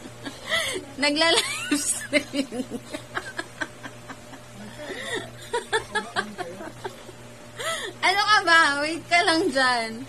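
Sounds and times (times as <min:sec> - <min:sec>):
low steady hum: 0:00.0 - 0:10.0
person chuckling: 0:01.4 - 0:07.9.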